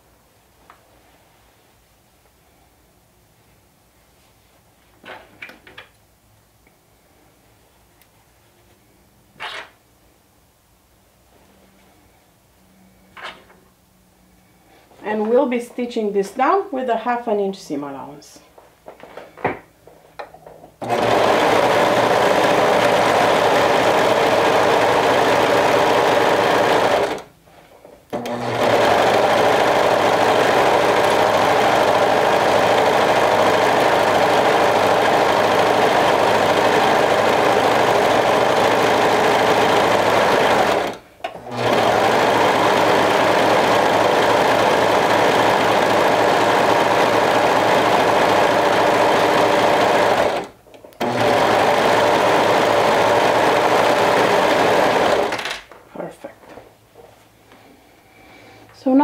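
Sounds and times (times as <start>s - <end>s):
serger sewing machine running: 20.8s - 27.3s, 28.2s - 55.4s.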